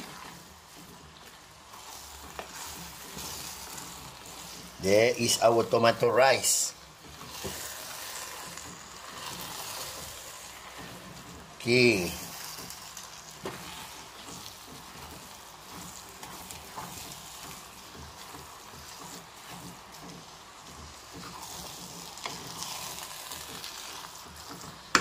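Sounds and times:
rice sizzling in a pot: 0.0 - 25.0
spatula scraping and tapping metal: 0.0 - 25.0.

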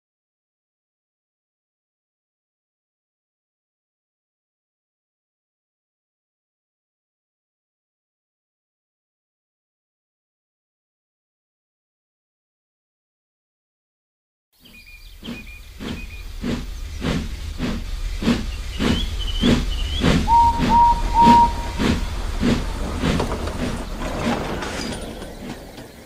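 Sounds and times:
birds chirping: 14.6 - 26.0
steam locomotive chuffing: 15.0 - 26.0
steam hissing: 15.2 - 26.0
train whistle toots: 18.9 - 23.8.

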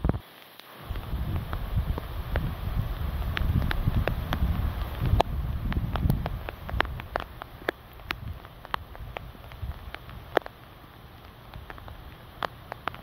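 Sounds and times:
raindrops ticking: 0.0 - 13.0
storm wind on microphone: 0.8 - 10.4.

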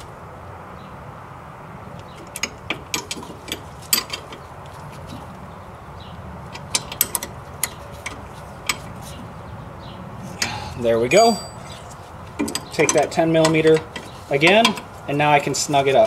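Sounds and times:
wrench clicking on bolts: 2.0 - 4.4, 6.5 - 9.0, 12.4 - 15.0.

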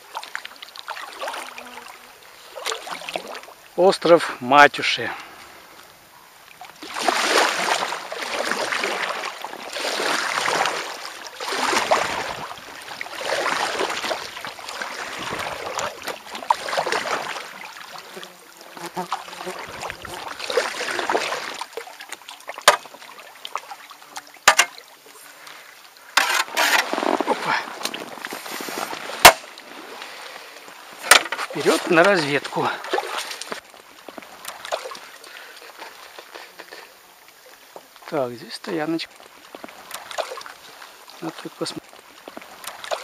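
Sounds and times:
paddle splashing in water: 0.0 - 3.6, 6.5 - 38.0, 39.1 - 43.0
sharp knocks: 24.4 - 24.8.

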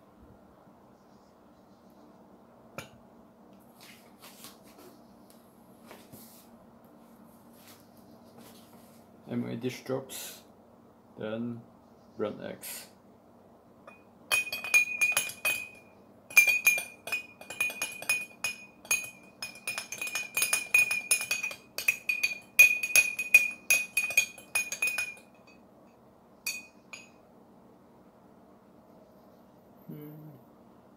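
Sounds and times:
spoons clinking in glass jars: 13.9 - 25.6, 26.5 - 27.2.

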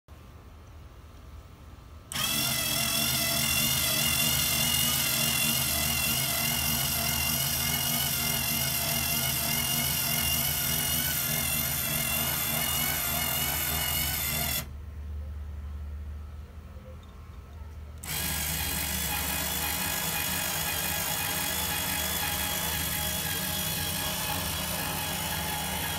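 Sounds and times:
cordless screwdriver geared whine: 2.1 - 14.7, 18.0 - 25.9.

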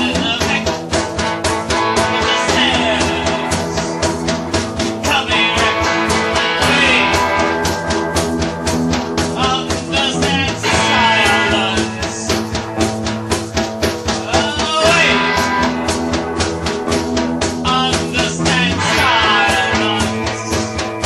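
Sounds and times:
person singing: 0.0 - 0.9, 1.8 - 4.2, 4.8 - 7.7, 9.3 - 12.7, 14.2 - 16.0, 17.6 - 21.0
guitar: 0.0 - 21.0
steady drum beat: 0.0 - 21.0.

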